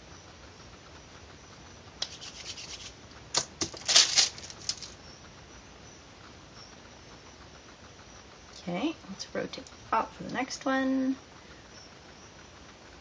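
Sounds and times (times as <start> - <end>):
hand rubbing across paper: 2.0 - 3.0.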